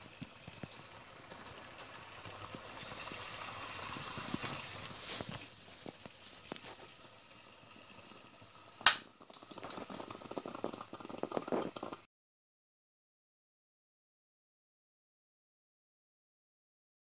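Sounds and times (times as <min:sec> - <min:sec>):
espresso sputtering: 0:00.0 - 0:12.1.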